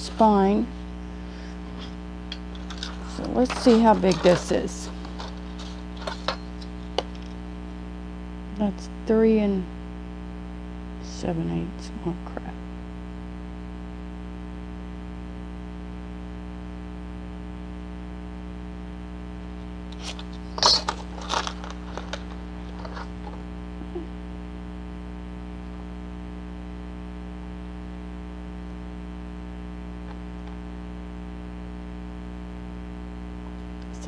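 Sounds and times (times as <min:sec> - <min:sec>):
electrical mains hum: 0:00.0 - 0:34.0
paper rustling and clicking: 0:01.8 - 0:07.4, 0:19.9 - 0:23.4.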